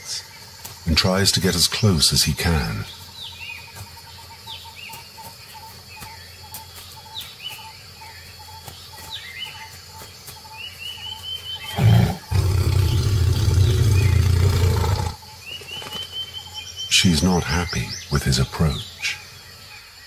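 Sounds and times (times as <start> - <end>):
birds chirping: 0.0 - 20.0
tiger growling: 11.6 - 15.2.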